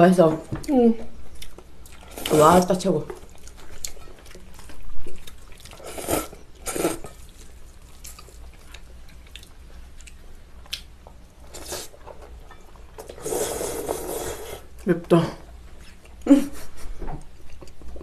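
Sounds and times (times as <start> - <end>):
chewing: 1.3 - 14.5, 17.2 - 18.0
noodles being slurped: 5.8 - 7.3, 13.0 - 14.7.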